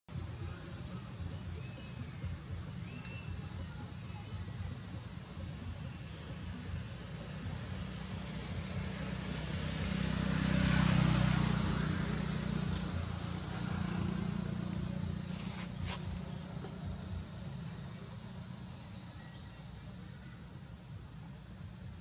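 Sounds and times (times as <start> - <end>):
passing vehicle engine drone: 4.8 - 20.0.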